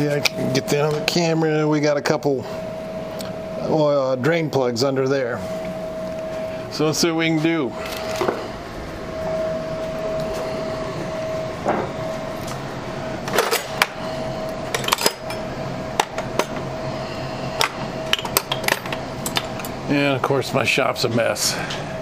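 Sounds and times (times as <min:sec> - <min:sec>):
steady background hum: 0:00.0 - 0:22.0
metal tools clinking and rattling: 0:14.7 - 0:15.4.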